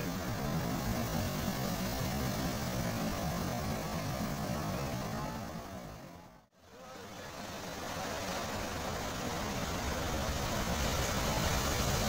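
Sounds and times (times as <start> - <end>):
low wind rumble: 0.0 - 6.5.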